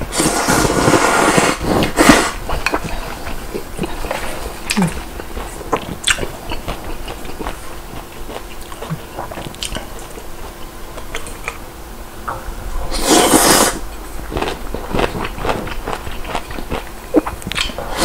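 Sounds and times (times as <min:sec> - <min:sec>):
loud noodle slurp: 0:00.1 - 0:03.2, 0:12.9 - 0:13.8
chewing with wet smacks: 0:01.8 - 0:11.6, 0:13.9 - 0:17.8.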